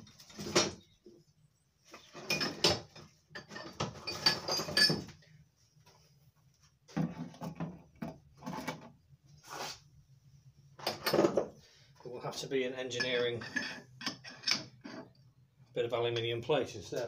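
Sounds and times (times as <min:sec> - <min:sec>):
rummaging through tools knocks and clinks: 0:01.9 - 0:05.3, 0:10.8 - 0:11.6, 0:12.9 - 0:15.1.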